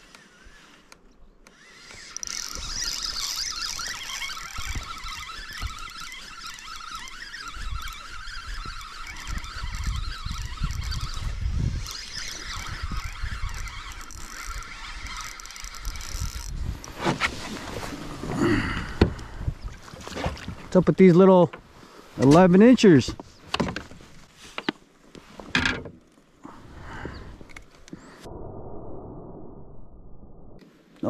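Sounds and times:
wind on microphone: 0:07.4 - 0:15.2, 0:15.9 - 0:20.7, 0:26.6 - 0:30.6.

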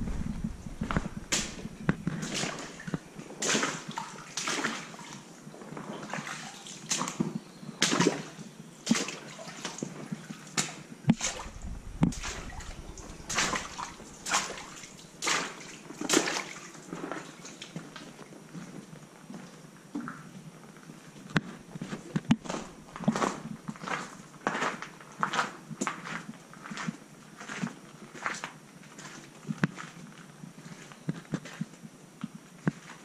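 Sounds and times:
footsteps: 0:00.0 - 0:03.0, 0:11.1 - 0:19.5, 0:21.4 - 0:24.9.

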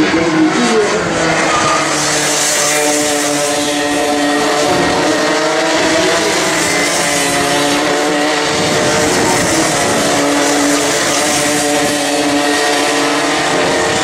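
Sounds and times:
racing kart engines: 0:00.0 - 0:14.0.

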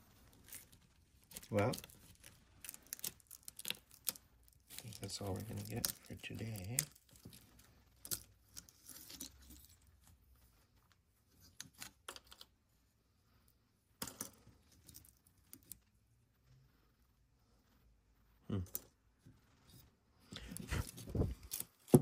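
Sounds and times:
rock flakes clicking and scratching: 0:00.2 - 0:09.8.

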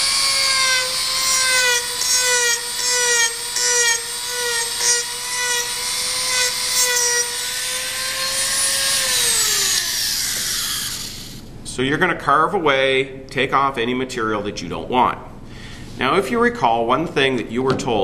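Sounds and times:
rotary tool whining: 0:00.0 - 0:11.5.

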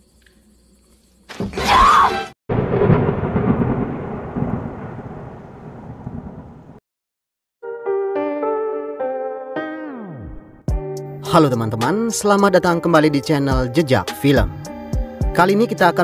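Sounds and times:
shrill cry: 0:01.5 - 0:02.3
deep cinematic boom: 0:02.5 - 0:06.6
electric piano music: 0:07.6 - 0:11.2.

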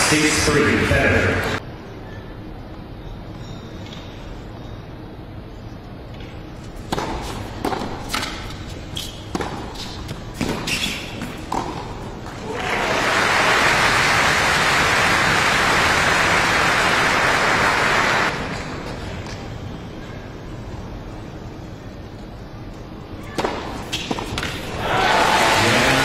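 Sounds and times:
crowd applause: 0:12.5 - 0:18.4, 0:24.8 - 0:26.0.

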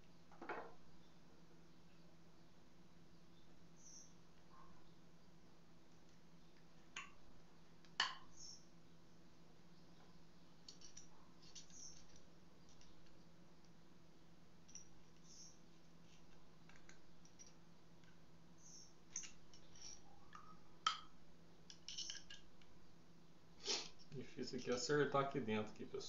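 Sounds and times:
small metal parts clicking: 0:10.6 - 0:13.8, 0:14.6 - 0:18.2, 0:19.1 - 0:20.5, 0:21.7 - 0:22.7, 0:24.0 - 0:24.9.

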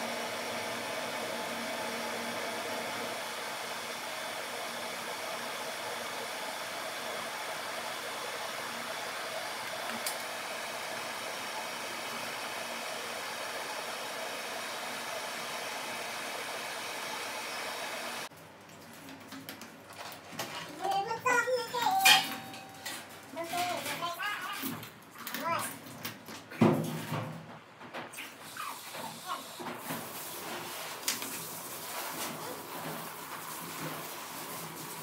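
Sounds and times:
hair dryer whirring: 0:00.0 - 0:18.3.

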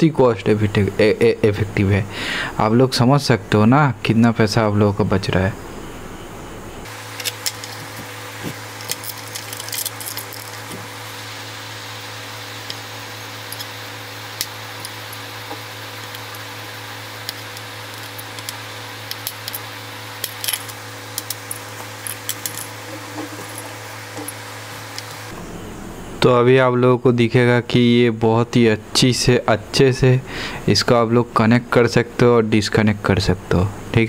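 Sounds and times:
steady low hum: 0:00.0 - 0:34.0.

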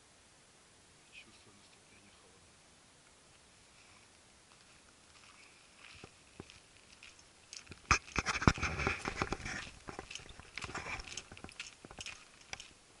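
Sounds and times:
crackling and rustling: 0:03.0 - 0:13.0.

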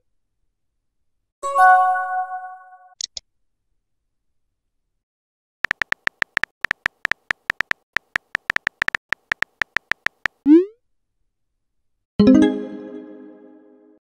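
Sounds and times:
phone keyboard typing clicks: 0:05.6 - 0:10.4.

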